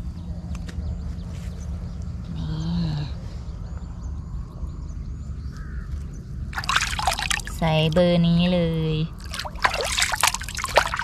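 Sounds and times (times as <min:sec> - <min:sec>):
hand splashing in water: 0:06.6 - 0:07.6, 0:09.2 - 0:11.0.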